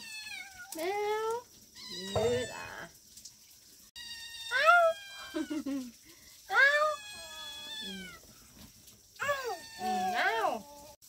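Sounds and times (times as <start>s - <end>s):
cat meowing: 0.0s - 0.8s, 1.8s - 2.9s, 4.0s - 5.6s, 6.5s - 8.2s, 9.2s - 11.0s.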